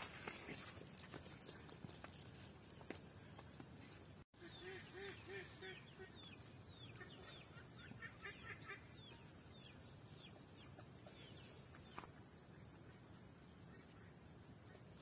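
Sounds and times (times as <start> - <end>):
birds chirping: 4.4 - 15.0.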